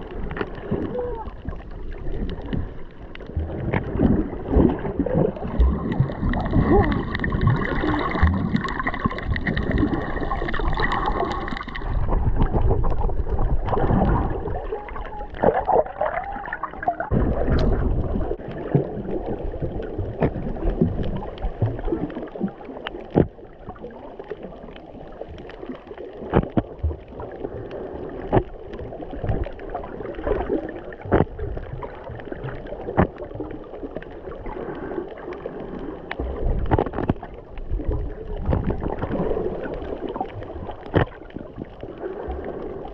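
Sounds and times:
muffled underwater water movement: 0.0s - 42.9s
sharp underwater clicks: 15.0s - 18.8s, 24.7s - 41.9s.

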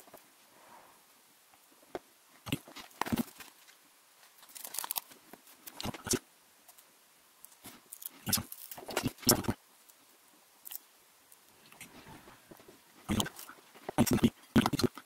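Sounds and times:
paper backing crackling and tearing: 2.7s - 6.0s.

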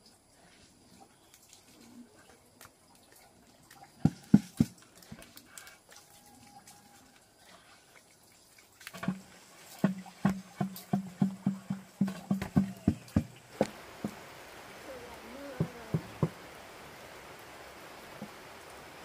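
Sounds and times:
hollow knocks: 9.0s - 14.2s, 15.6s - 16.4s.

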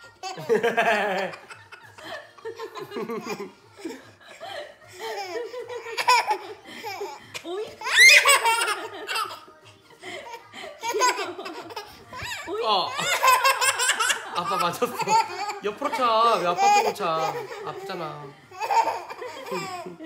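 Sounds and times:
toddler laughing: 7.8s - 9.4s, 10.2s - 17.8s.

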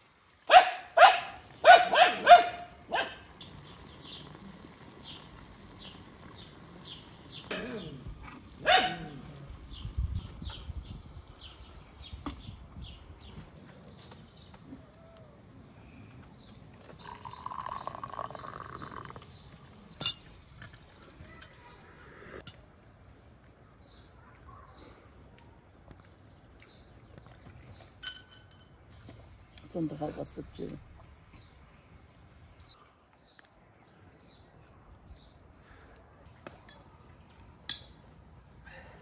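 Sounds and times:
birds chirping: 0.5s - 22.6s, 29.3s - 36.0s
glass tea cups clinking: 17.0s - 19.3s, 19.9s - 21.7s, 28.0s - 28.8s, 37.7s - 38.1s.

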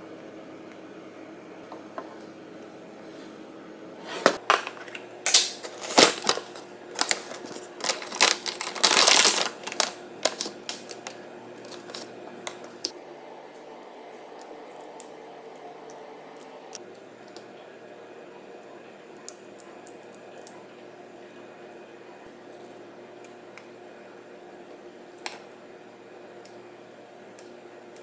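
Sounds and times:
low steady hum: 0.0s - 28.0s
packaging clicks and knocks: 4.4s - 12.0s
plastic bag crinkling: 4.4s - 12.9s.

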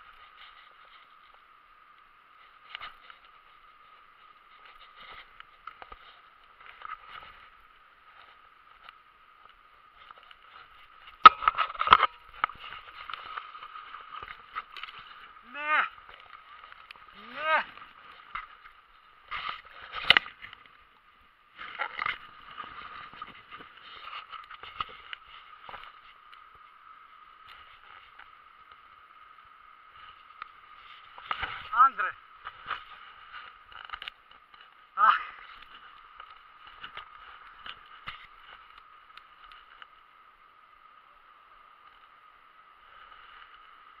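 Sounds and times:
camera handling rustling and knocking: 10.2s - 15.0s, 19.3s - 20.6s.

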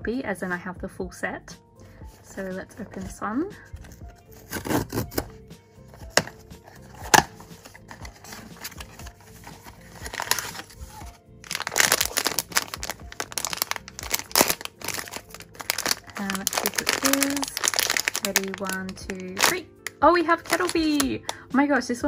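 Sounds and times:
background music: 0.0s - 22.0s
plastic bag crinkling and tearing: 3.8s - 5.3s, 6.1s - 21.1s
cardboard flap snapping open: 3.8s - 5.4s, 6.0s - 9.0s, 9.6s - 10.8s, 11.4s - 18.7s.

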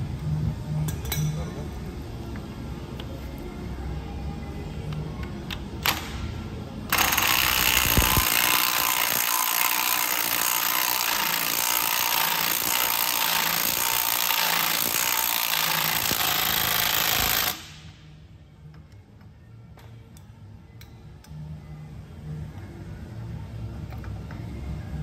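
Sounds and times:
power tool running: 6.9s - 17.8s.

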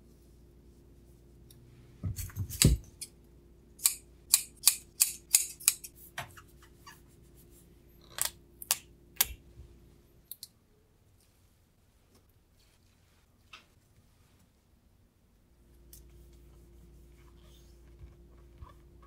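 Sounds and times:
scissors snipping tape: 3.8s - 5.9s.

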